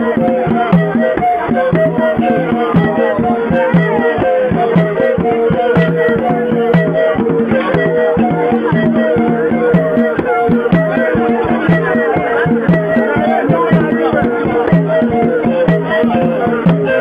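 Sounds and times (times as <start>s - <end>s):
drums and rattles beating: 0.0s - 17.0s.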